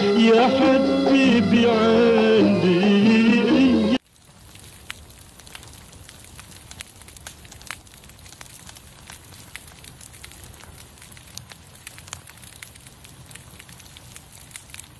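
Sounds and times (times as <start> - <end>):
fire crackling and popping: 4.0 - 14.9.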